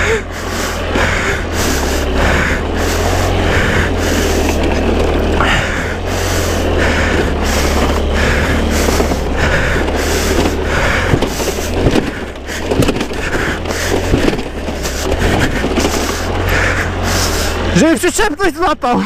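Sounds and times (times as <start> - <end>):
scooter engine running: 0.0 - 19.0.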